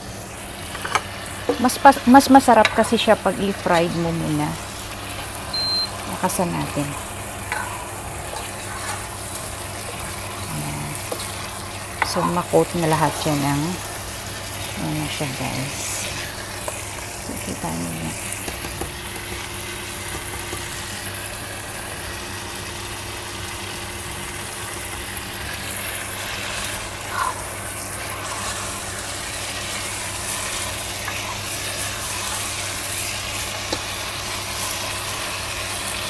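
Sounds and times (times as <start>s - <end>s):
chicken sizzling in oil: 0.0s - 36.0s
electric cooktop hum: 0.0s - 36.0s
spatula stirring in pot: 4.6s - 13.6s, 26.4s - 35.4s.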